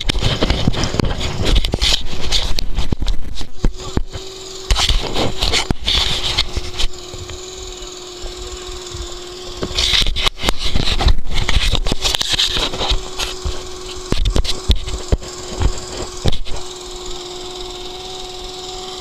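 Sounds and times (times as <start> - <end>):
goggles rustling and scraping: 0.0 - 16.7
hovercraft engine idling: 6.4 - 9.8.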